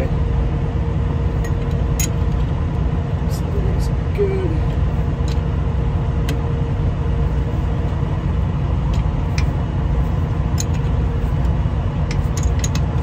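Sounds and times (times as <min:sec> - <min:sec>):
engine idling: 0:00.0 - 0:13.0
wrench clicking on metal: 0:12.1 - 0:12.9.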